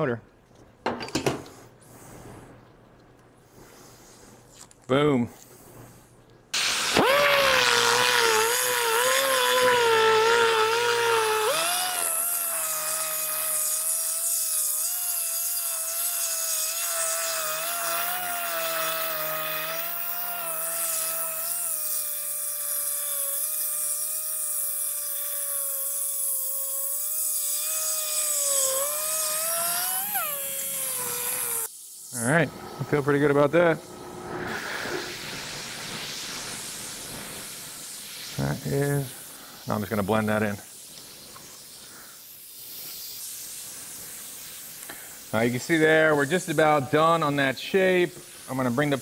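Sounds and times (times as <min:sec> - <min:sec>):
die grinder whining: 0:06.6 - 0:31.7.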